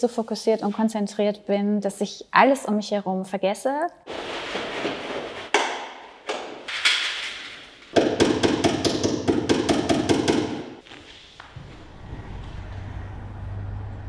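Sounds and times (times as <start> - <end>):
small hammer tapping pins: 7.9 - 10.7.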